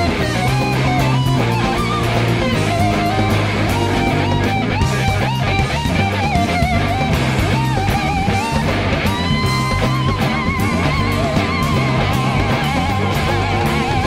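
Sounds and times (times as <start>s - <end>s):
bass guitar: 0.0s - 14.0s
drums: 0.0s - 14.0s
electric slide guitar solo: 0.0s - 14.0s.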